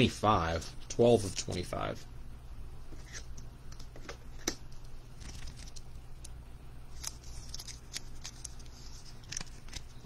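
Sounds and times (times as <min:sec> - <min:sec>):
trading cards clicking and rustling: 0:05.2 - 0:10.0.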